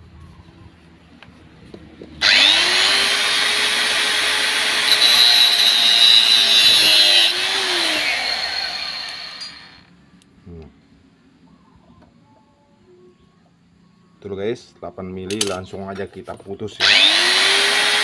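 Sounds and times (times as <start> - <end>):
angle grinder cutting metal: 2.2 - 9.8, 16.8 - 18.0
grinder disc screech: 2.2 - 9.8, 16.8 - 18.0.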